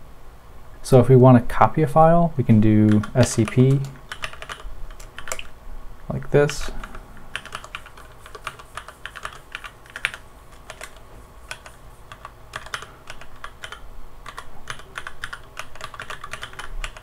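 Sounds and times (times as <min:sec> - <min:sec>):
typing on keyboard: 0:02.9 - 0:05.5, 0:06.5 - 0:17.0.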